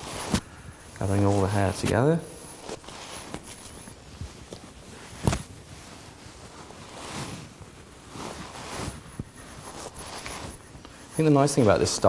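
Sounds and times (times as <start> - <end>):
brush swishing through hair: 5.6 - 12.0.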